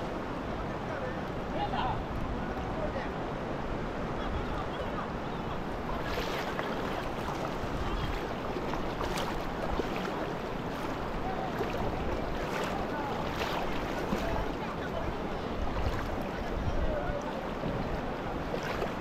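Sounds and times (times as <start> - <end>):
flowing water rushing: 0.0 - 19.0.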